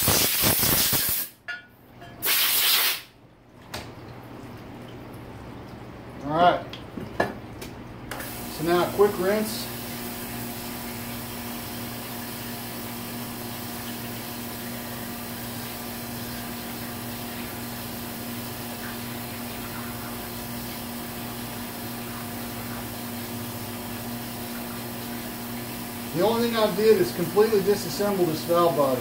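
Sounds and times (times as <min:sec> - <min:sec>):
hose spraying with hiss: 0:00.0 - 0:01.4, 0:02.2 - 0:03.1
pump humming: 0:03.2 - 0:29.0.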